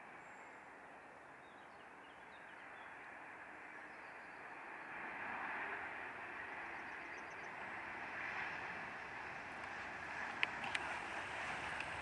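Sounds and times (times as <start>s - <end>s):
jet engine rush: 7.5s - 12.0s.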